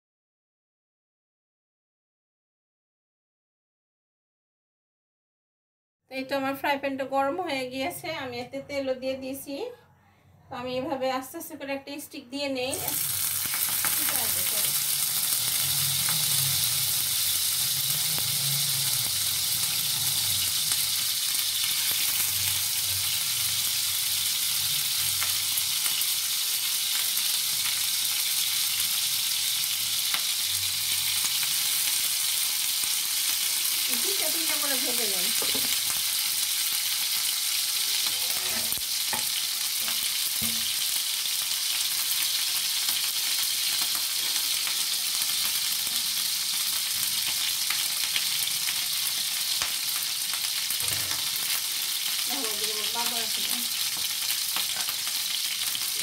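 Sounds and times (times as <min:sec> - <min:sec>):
oil sizzling in a frying pan: 0:12.6 - 0:56.0.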